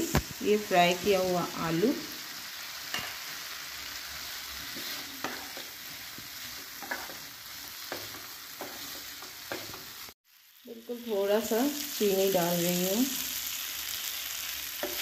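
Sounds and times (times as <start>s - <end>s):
paste sizzling in hot oil: 0.0s - 15.0s
spatula knocking and scraping pan: 4.6s - 10.0s.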